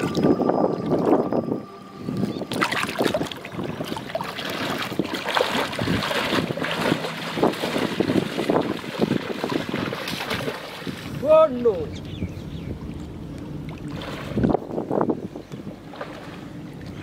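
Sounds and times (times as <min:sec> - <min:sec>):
person wading through water: 0:01.9 - 0:11.3, 0:12.8 - 0:15.0, 0:15.7 - 0:17.0.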